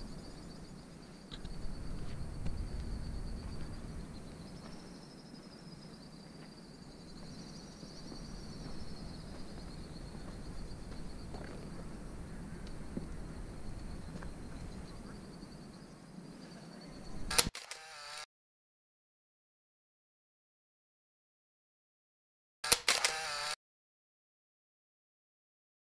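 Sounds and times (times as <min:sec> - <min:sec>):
high-pitched insect trill: 0:00.0 - 0:18.2.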